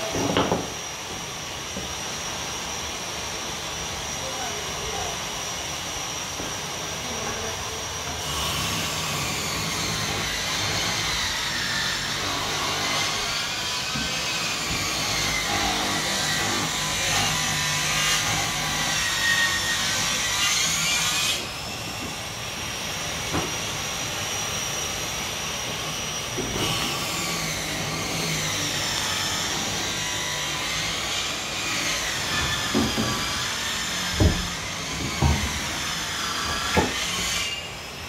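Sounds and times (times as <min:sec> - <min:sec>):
power tool motor whining: 0:08.0 - 0:38.0
hard knocks: 0:34.1 - 0:35.6.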